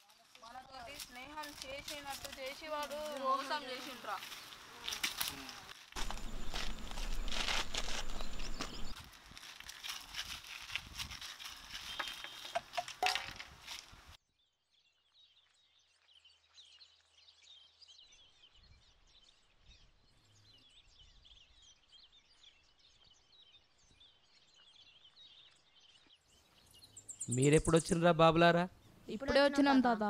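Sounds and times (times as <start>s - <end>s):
birds chirping: 0.4s - 9.0s, 11.8s - 13.6s, 20.1s - 30.0s
footsteps scuffing on dry ground: 0.8s - 14.2s.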